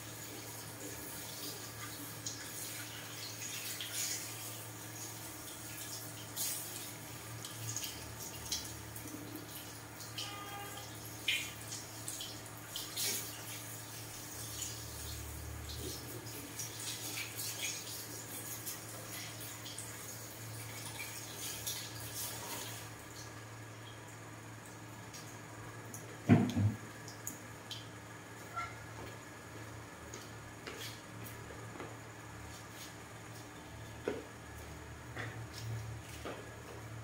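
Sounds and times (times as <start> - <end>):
shower sprayer water running: 0.0 - 23.3
water splashes and drips: 0.2 - 28.0.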